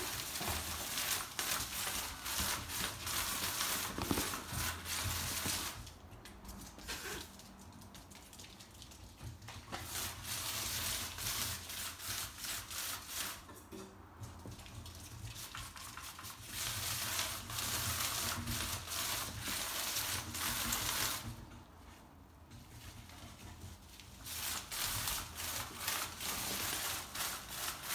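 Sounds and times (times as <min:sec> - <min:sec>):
plastic sheeting crinkling: 0:00.0 - 0:06.0, 0:23.8 - 0:27.9.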